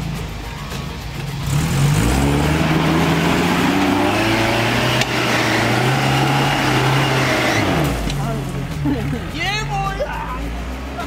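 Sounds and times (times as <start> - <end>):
car engine pulling under load: 0.0 - 11.0.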